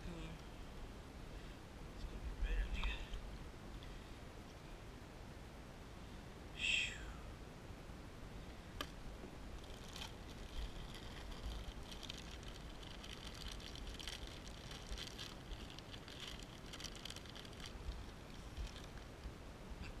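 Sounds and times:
low wind rumble on microphone: 0.0s - 4.2s, 4.8s - 20.0s
plastic bag crinkling: 9.6s - 19.1s.

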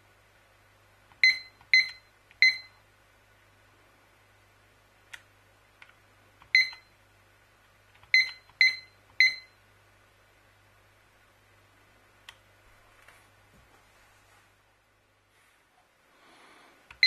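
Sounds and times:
short high-pitched timer beeps: 1.2s - 2.8s, 6.5s - 6.9s, 8.1s - 9.6s.

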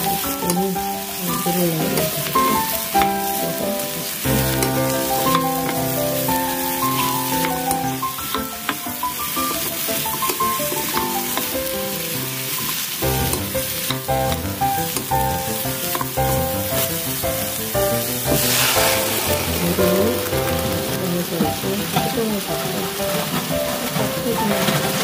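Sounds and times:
spatula stirring in a pan: 0.0s - 21.0s
food sizzling in a frying pan: 0.0s - 25.0s
background music: 13.2s - 25.0s.

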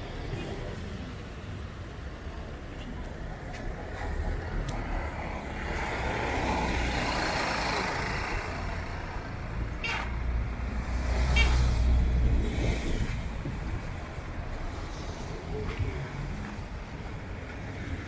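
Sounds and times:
engines rumbling: 0.0s - 18.0s.

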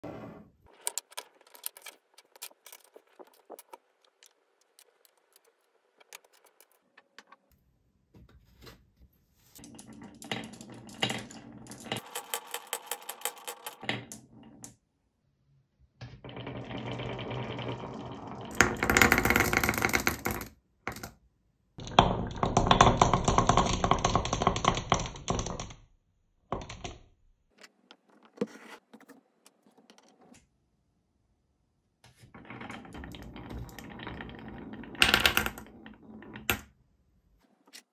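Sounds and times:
marbles rolling down wooden slope: 9.6s - 14.8s, 16.2s - 21.2s, 21.8s - 25.7s, 32.2s - 36.7s.

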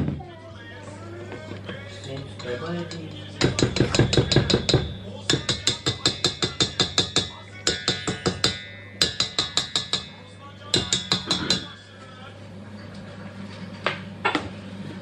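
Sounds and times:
whisk tapping metal bowl: 1.6s - 11.8s.

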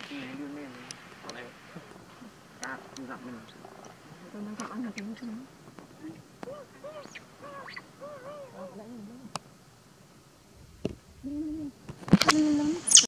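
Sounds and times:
baby monkey cooing: 2.1s - 9.3s, 11.2s - 13.0s.

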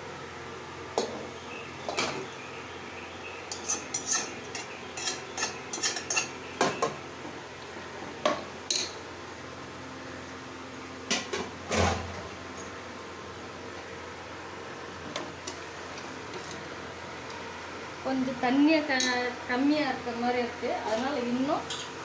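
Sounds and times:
spoon scraping metal pot: 3.5s - 6.4s.

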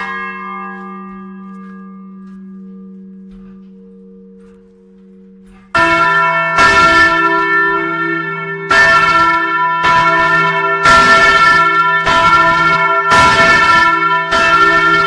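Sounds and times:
faint lingering bell hum: 0.0s - 9.5s
church bell strikes ringing: 0.0s - 15.0s.

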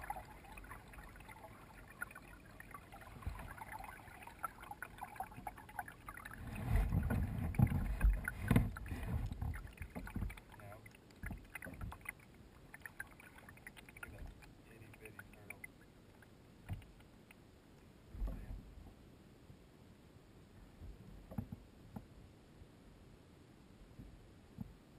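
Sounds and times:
paddle strokes splashing water: 0.0s - 17.0s
low thumps and knocks: 6.6s - 10.4s.

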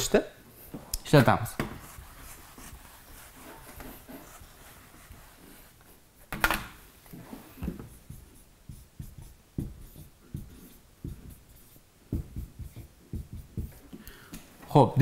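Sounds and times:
marker writing on whiteboard: 0.6s - 6.4s, 7.1s - 14.1s.

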